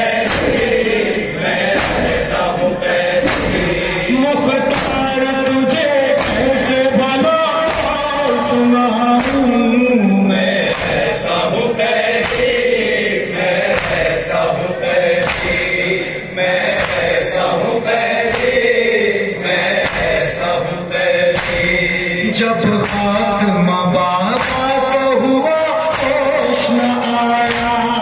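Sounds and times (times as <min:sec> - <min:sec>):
crowd of men chanting: 0:00.0 - 0:28.0
man singing amplified lament: 0:00.0 - 0:28.0
chest-beating slaps: 0:00.1 - 0:08.2, 0:09.2 - 0:09.7, 0:10.5 - 0:11.4, 0:12.1 - 0:17.5, 0:18.2 - 0:18.9, 0:19.6 - 0:20.5, 0:21.2 - 0:21.8, 0:22.8 - 0:23.2, 0:24.3 - 0:26.5, 0:27.4 - 0:28.0.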